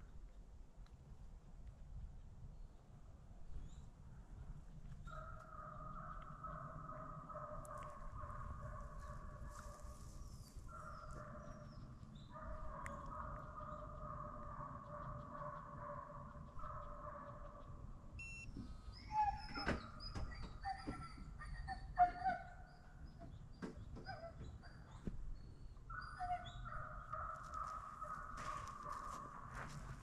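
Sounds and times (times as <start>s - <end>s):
hounds baying in distance: 5.0s - 17.9s, 19.0s - 25.1s, 25.8s - 30.0s
small birds chirping: 7.6s - 29.2s.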